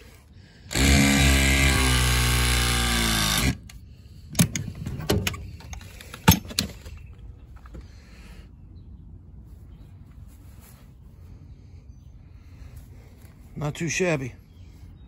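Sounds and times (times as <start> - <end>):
power tool motor running: 0.7 - 3.8.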